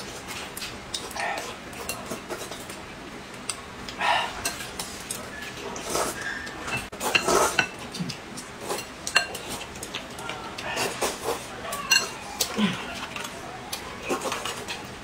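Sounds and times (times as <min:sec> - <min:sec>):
chopsticks on porcelain bowls: 0:04.4 - 0:14.9
metal spoon clinking on glass: 0:11.9 - 0:12.2.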